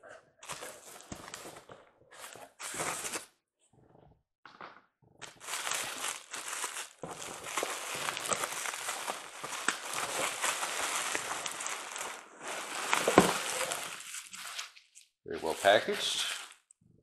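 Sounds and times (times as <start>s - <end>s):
bubble wrap crinkling: 5.2s - 16.7s.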